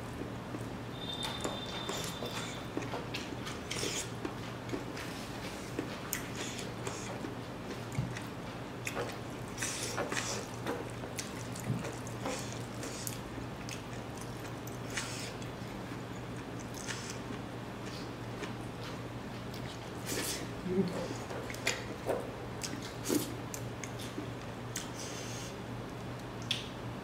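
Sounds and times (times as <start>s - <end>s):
chewing and lip-smacking: 1.4s - 18.6s.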